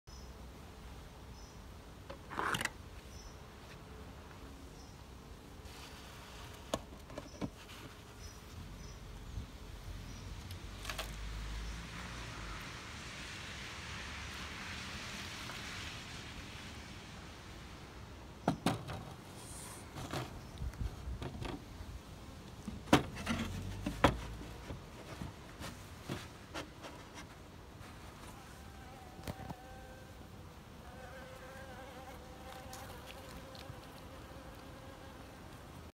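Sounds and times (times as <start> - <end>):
wooden knocks and clunks: 18.4 - 19.2, 21.1 - 21.7, 22.6 - 27.4
honeybees buzzing: 28.1 - 35.8.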